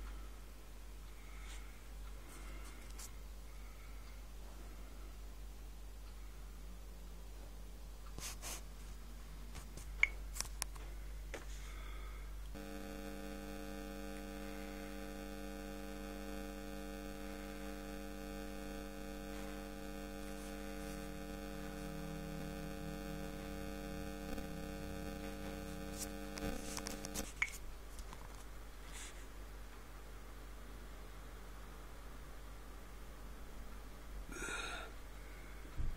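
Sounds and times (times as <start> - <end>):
electronic hum of held tones: 0.0 - 27.6, 30.6 - 35.9.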